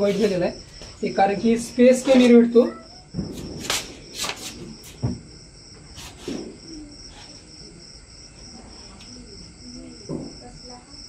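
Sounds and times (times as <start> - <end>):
hissy clattering noises: 0.0 - 7.5
crickets chirring: 0.0 - 11.0.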